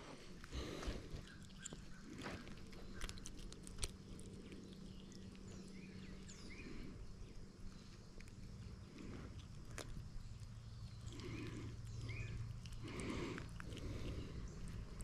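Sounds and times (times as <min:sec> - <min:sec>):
faint high bird chirps: 0:04.6 - 0:08.6, 0:10.2 - 0:12.5.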